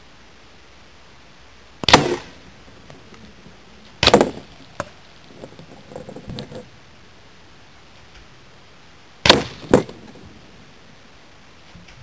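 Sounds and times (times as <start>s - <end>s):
air rifle shots: 1.8s - 2.4s, 4.0s - 4.6s, 9.2s - 10.2s.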